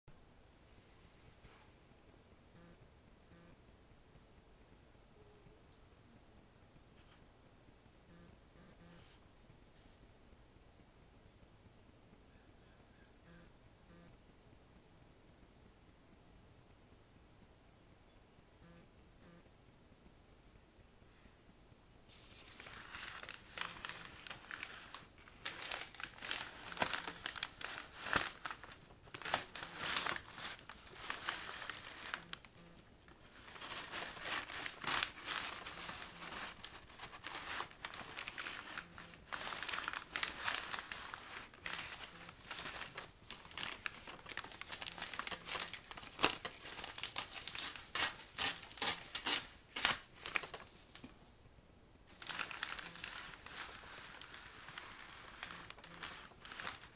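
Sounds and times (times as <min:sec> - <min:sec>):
paper bags crinkling and tearing: 0:22.1 - 0:51.1, 0:52.1 - 0:56.9.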